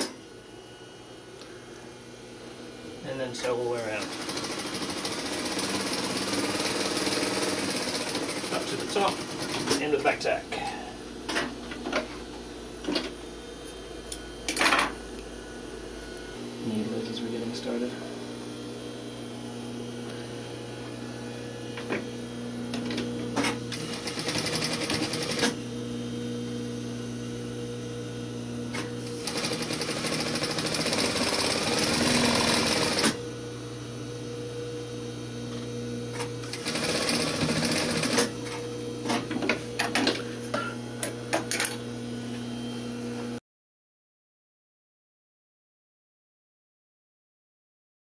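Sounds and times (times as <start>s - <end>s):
steady electric hum: 0.0s - 43.4s
sewing machine stitching: 3.8s - 9.8s, 23.7s - 25.6s, 29.0s - 33.2s, 36.4s - 38.3s.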